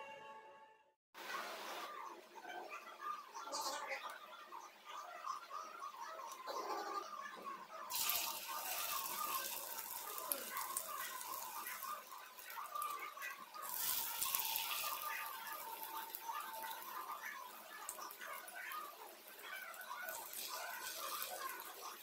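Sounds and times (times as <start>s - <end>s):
food sizzling in hot oil: 7.9s - 22.0s.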